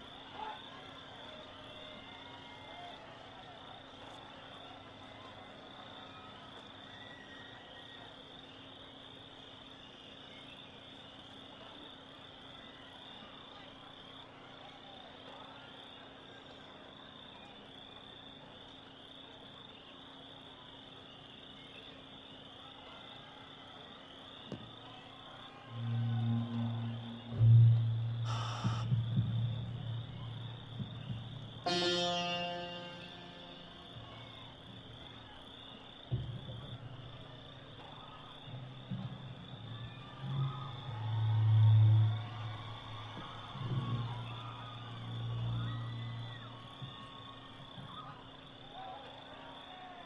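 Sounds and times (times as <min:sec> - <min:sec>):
crickets chirping: 0:00.0 - 0:50.0
faint low hum: 0:23.9 - 0:50.0
high-pitched chirring: 0:25.7 - 0:30.5
thump: 0:36.1 - 0:36.7.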